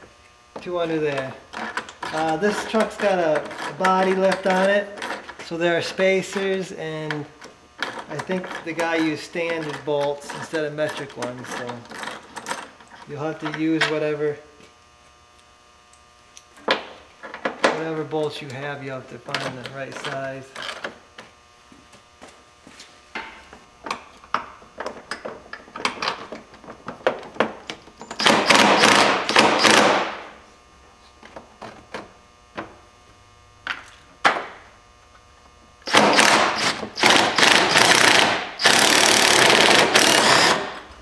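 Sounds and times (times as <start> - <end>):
impact driver running: 28.1 - 30.4, 35.8 - 41.0.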